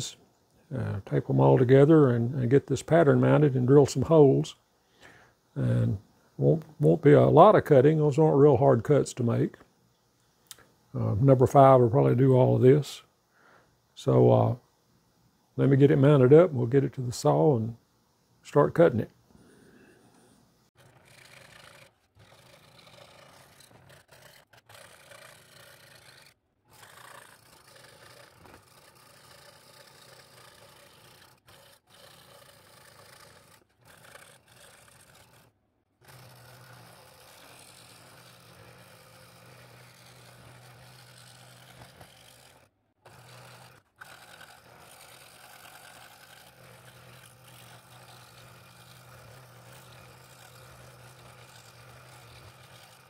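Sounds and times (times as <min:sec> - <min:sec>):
scroll saw cutting wood: 0:00.0 - 0:00.2, 0:20.2 - 0:53.0.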